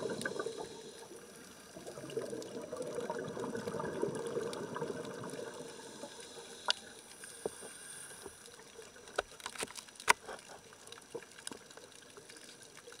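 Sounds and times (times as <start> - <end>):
regulator bubbles: 0.0 - 6.8
faint underwater hiss: 0.0 - 13.0
sharp underwater clicks: 9.0 - 12.8.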